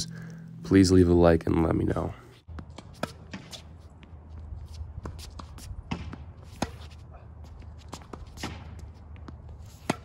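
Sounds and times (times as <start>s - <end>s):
tennis ball bouncing: 2.4s - 10.0s
tennis racket striking ball: 2.5s - 4.3s, 4.9s - 10.0s.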